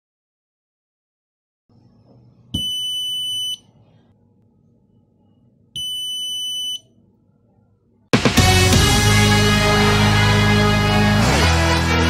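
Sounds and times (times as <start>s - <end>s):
high-pitched buzzer beeps: 2.6s - 3.6s.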